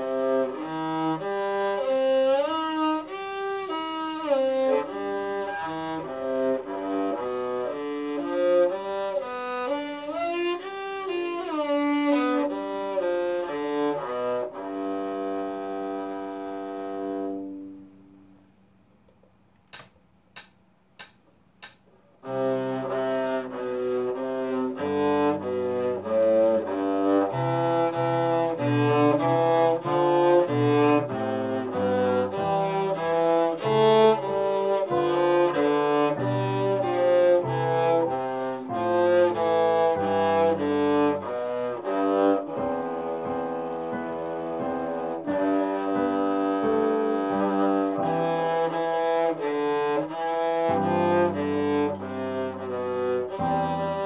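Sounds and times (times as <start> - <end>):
bowed cello notes: 0.0 - 18.4, 20.4 - 54.0
sharp clicks: 19.1 - 21.9.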